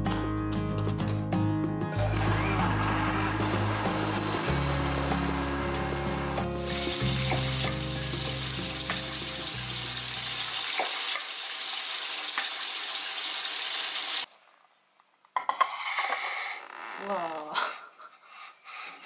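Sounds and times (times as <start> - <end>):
background music with bass: 0.0 - 10.4
chicken deep-frying in oil: 6.6 - 14.3.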